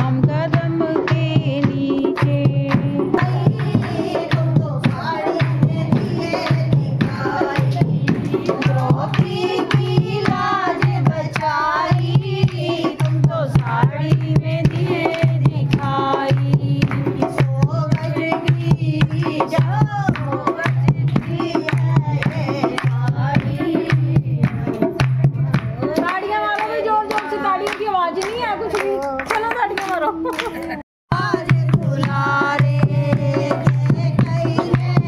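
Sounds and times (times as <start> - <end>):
dholak drum beat: 0.0 - 30.2, 31.1 - 35.0
women singing devotional song: 0.0 - 35.0
hand clapping: 6.3 - 30.8.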